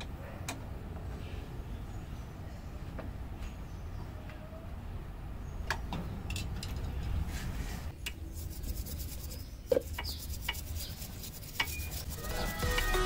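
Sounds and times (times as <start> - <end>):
toothbrush scrubbing a chain: 8.2 - 13.0.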